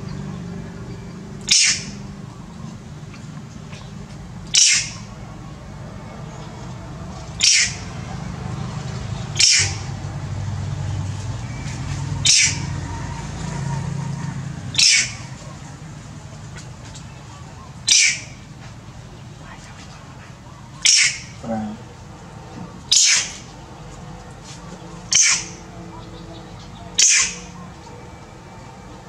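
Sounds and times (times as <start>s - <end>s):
monkey screaming: 1.5s - 2.0s, 4.5s - 5.1s, 7.4s - 7.9s, 9.4s - 9.9s, 12.2s - 12.8s, 14.7s - 15.4s, 17.9s - 18.4s, 20.8s - 21.9s, 22.9s - 23.5s, 25.1s - 25.7s, 27.0s - 27.6s.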